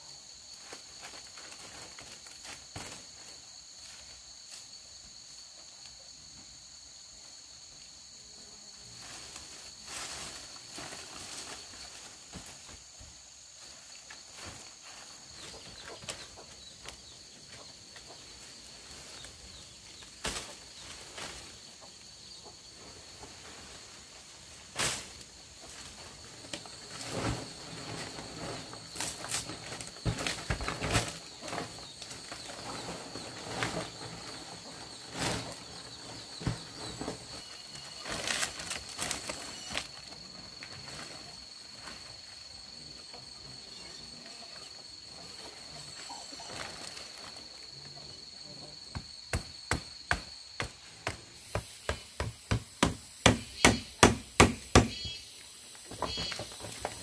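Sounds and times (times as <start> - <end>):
bamboo knocks and clatter: 24.8 - 40.2, 55.9 - 57.0.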